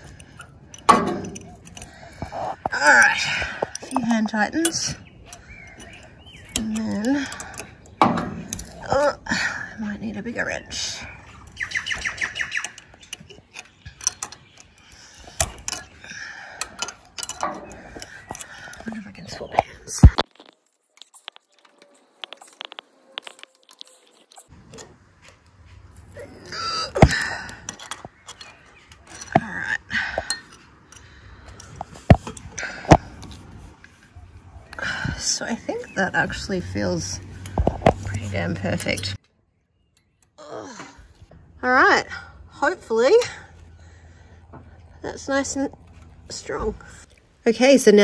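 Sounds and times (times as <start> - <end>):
spanner clicking on nut: 0.0 - 8.9, 11.4 - 18.9
wrench clinking on metal anchor: 0.0 - 9.0, 11.4 - 19.7, 26.5 - 33.5.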